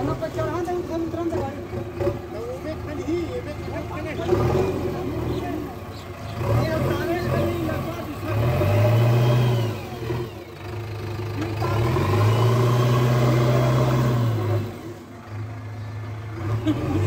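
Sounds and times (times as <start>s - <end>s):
diesel engine revving: 0.0s - 17.0s.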